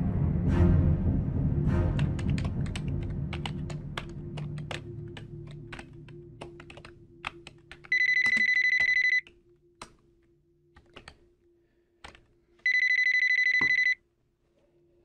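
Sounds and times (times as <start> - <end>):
keyboard typing: 2.0 - 10.0, 10.7 - 11.2, 12.0 - 14.0
telephone electronic ring: 7.9 - 9.2, 12.6 - 14.0.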